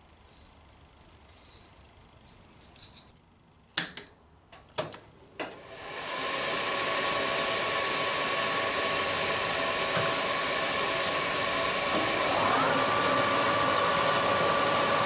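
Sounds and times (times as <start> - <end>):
milling machine motor whirring: 6.1 - 15.0.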